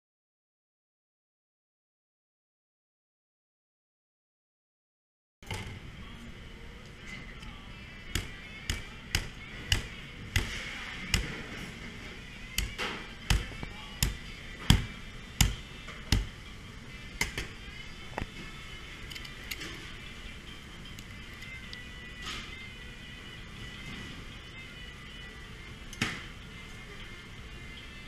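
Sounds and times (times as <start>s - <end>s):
cleaver chopping through ribs: 8.2s - 11.5s, 12.6s - 16.4s.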